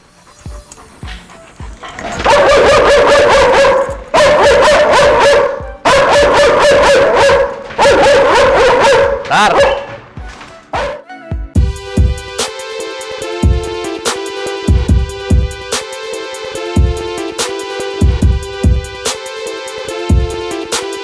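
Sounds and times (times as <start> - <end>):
dog barking fiercely: 1.8 - 10.0, 10.8 - 11.0.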